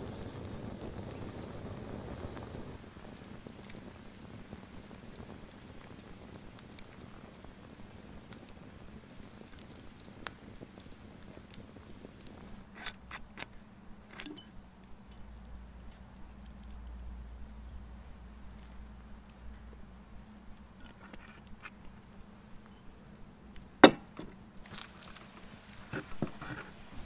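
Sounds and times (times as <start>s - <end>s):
faint hiss: 0.0s - 27.0s
wood fire crackling: 0.0s - 27.0s
sharp pops and snaps: 2.3s - 22.1s.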